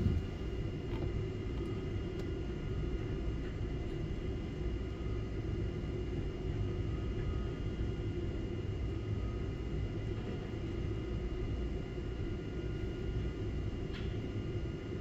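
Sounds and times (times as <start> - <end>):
crane machinery rumble: 0.0 - 1.6.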